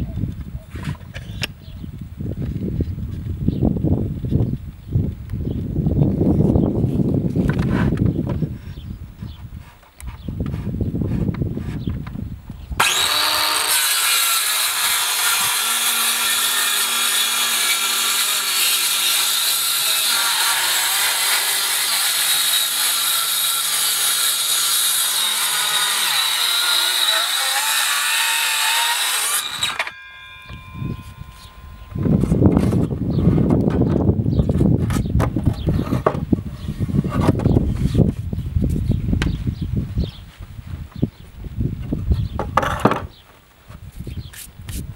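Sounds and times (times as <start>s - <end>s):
saw blade winding down whine: 12.8s - 32.0s
circular saw cutting wood: 12.8s - 32.9s.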